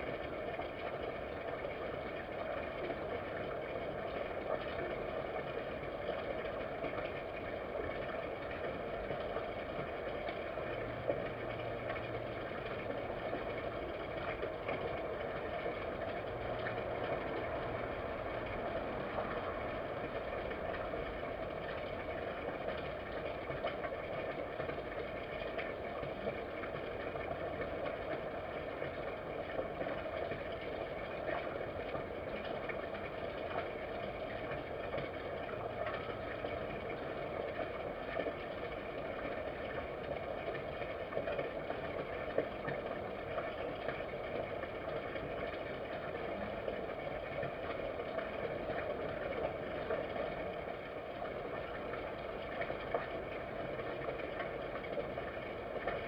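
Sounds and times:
background hum and hiss: 0:00.0 - 0:56.0.

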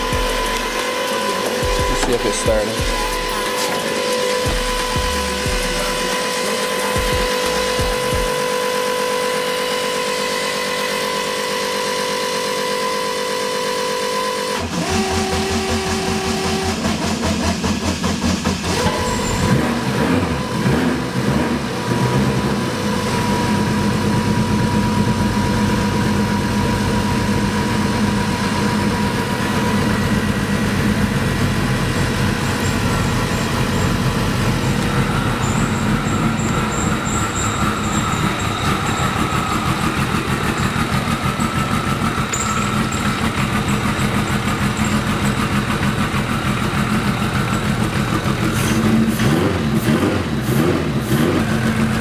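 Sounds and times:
starter cranking: 0:00.0 - 0:08.4, 0:32.3 - 0:49.3
steady high whine: 0:00.0 - 0:14.2, 0:16.2 - 0:49.1
engine idling: 0:00.0 - 0:52.0.

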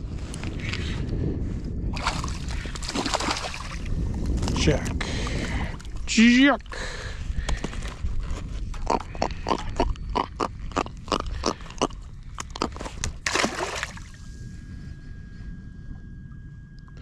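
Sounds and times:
water splash: 0:02.0 - 0:03.8, 0:13.2 - 0:14.2
fish grunting croaks: 0:08.7 - 0:13.2.

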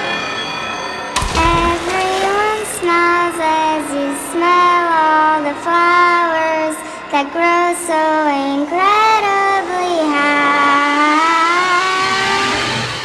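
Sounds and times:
short crisp hits: 0:01.2 - 0:03.5.

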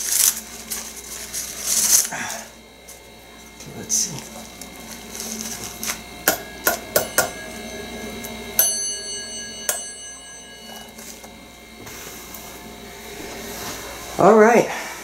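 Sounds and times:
elevator bell ringing: 0:06.4 - 0:11.8.

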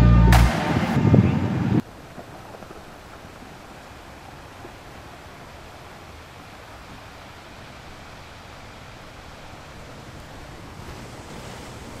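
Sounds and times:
wind and sea rushing: 0:00.5 - 0:12.0
water spray from ship's bow: 0:05.5 - 0:12.0.

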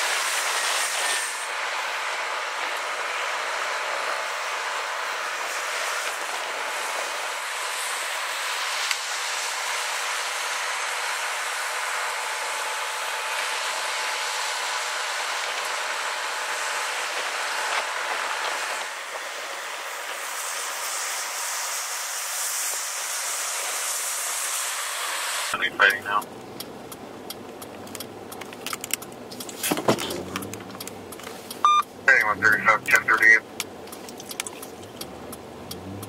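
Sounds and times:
tyres hissing on wet highway: 0:00.0 - 0:27.2, 0:29.1 - 0:36.0.

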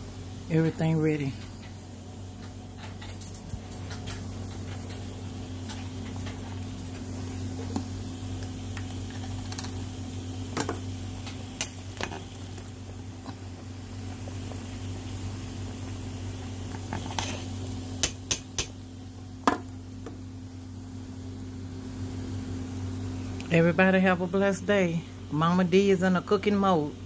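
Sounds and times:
steady low hum: 0:00.0 - 0:27.0
pot of food bubbling: 0:03.8 - 0:21.2.

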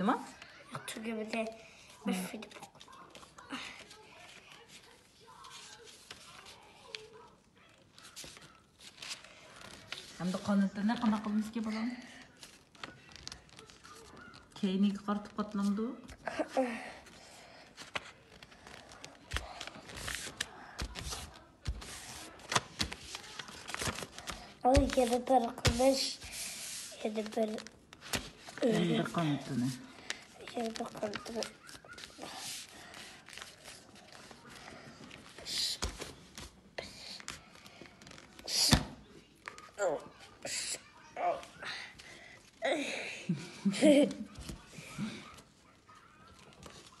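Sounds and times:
paper rustling and creasing: 0:01.8 - 0:07.3, 0:07.9 - 0:11.5, 0:12.1 - 0:15.8, 0:16.8 - 0:38.7.

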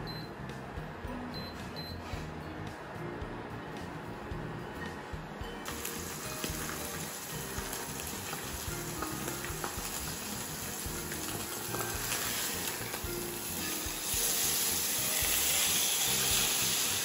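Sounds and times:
background music: 0:00.0 - 0:17.0
meat sizzling in a frying pan: 0:05.6 - 0:17.0.

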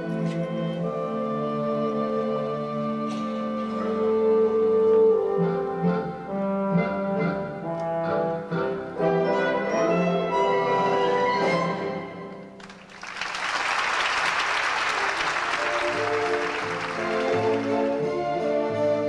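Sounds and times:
orchestral music: 0:00.0 - 0:12.6, 0:14.6 - 0:19.0
audience applauding: 0:12.6 - 0:19.0.

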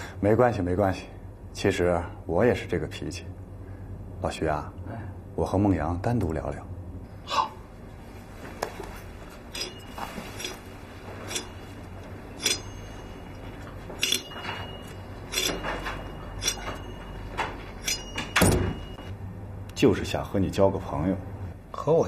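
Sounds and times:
utensils clinking on plates: 0:09.3 - 0:19.1.

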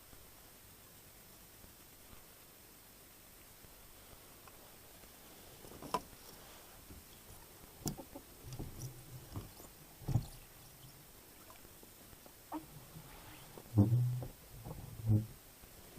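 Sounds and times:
knocks and clatter in boat: 0:06.9 - 0:10.8.

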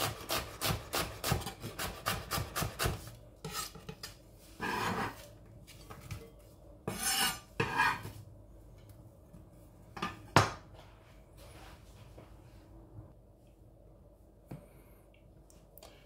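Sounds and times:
onion scraped off chopping board: 0:00.0 - 0:04.0.

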